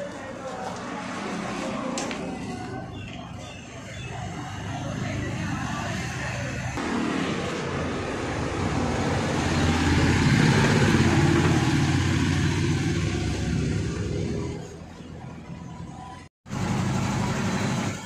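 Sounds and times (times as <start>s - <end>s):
vehicle engine running: 4.0s - 15.5s.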